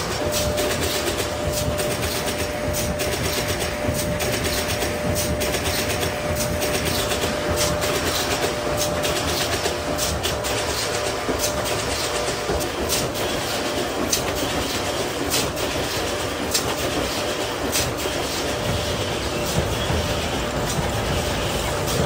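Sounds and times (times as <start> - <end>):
machine mechanical clatter: 0.0 - 22.0
machine hum: 15.6 - 22.0.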